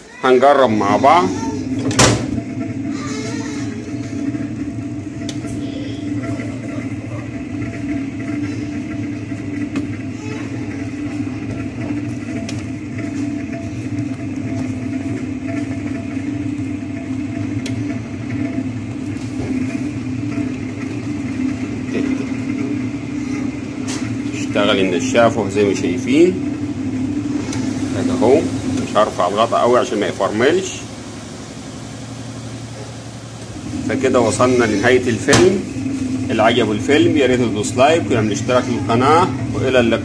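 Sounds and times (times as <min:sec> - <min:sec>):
washing machine motor hum: 0:00.0 - 0:40.0.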